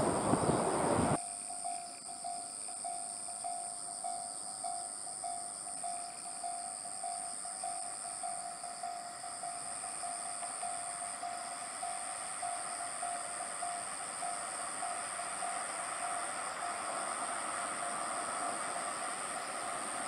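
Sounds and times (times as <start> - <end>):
train rushing past: 0.0 - 1.2, 10.8 - 20.0.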